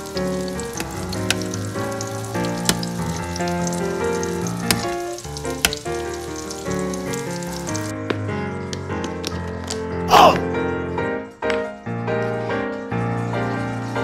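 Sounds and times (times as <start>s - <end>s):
fish roe sizzling in a saucepan: 0.0s - 7.9s
music with held notes: 0.0s - 14.0s.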